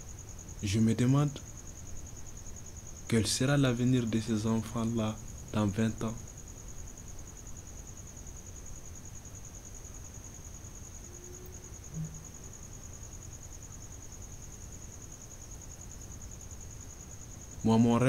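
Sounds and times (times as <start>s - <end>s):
high-pitched insect trill: 0.0s - 18.0s
low thud: 12.0s - 12.4s.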